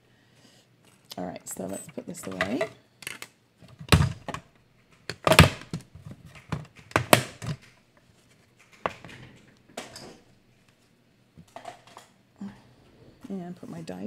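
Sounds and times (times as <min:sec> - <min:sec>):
plastic plates knocking and clattering: 0:02.1 - 0:02.8, 0:05.1 - 0:07.8, 0:08.7 - 0:10.2.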